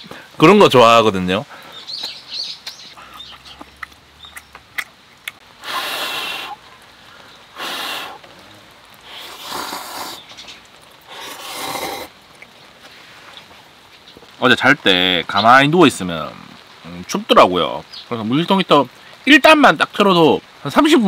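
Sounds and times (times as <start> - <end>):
person slurping noodles: 9.1 - 10.2, 11.1 - 12.1.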